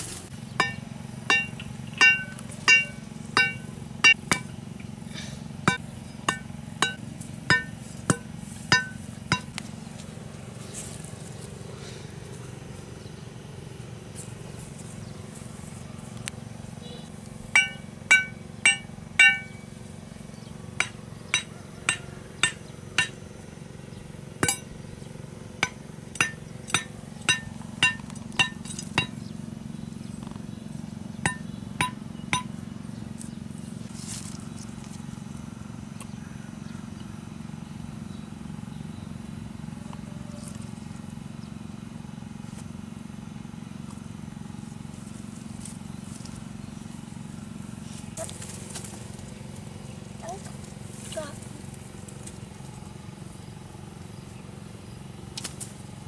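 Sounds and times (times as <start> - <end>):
steady low hum: 0.0 - 56.0
machete knocking a stake: 5.7 - 9.6, 24.4 - 24.7.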